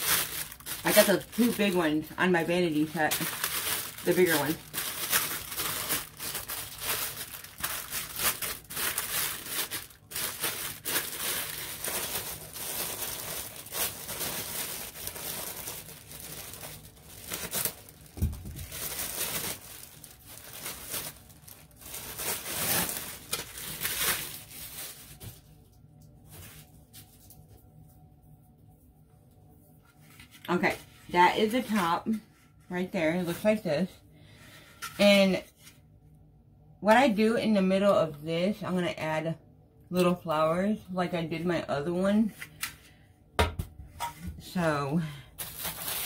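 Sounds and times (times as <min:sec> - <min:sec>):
plastic wrap crinkling: 0:00.0 - 0:27.6, 0:45.2 - 0:46.0.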